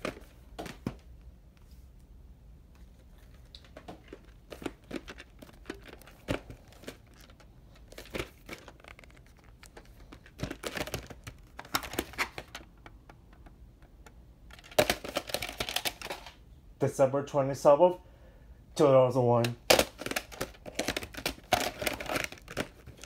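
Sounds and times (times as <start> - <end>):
plastic case clicks and rustling: 3.2 - 16.4, 19.4 - 23.0.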